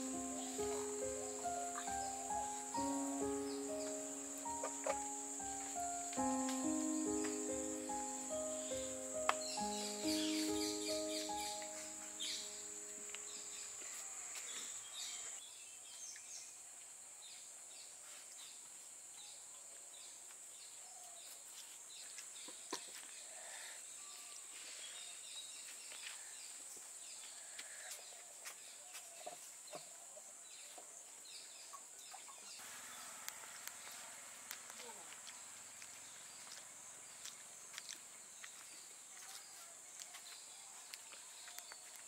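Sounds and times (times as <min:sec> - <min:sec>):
high-pitched insect buzz: 0:00.0 - 0:15.3
faint bird chirps: 0:00.0 - 0:15.4.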